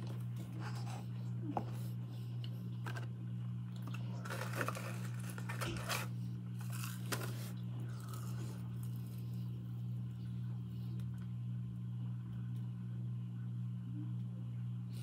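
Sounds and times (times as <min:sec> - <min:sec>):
faint chewing: 0:00.0 - 0:11.3
steady low hum: 0:00.0 - 0:15.0.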